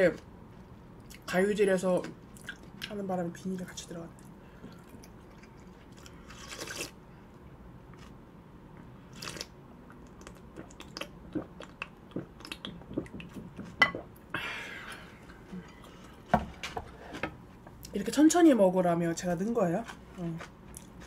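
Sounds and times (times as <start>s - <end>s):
person slurping broth: 6.3s - 7.0s
wet chewing clicks: 9.2s - 13.8s.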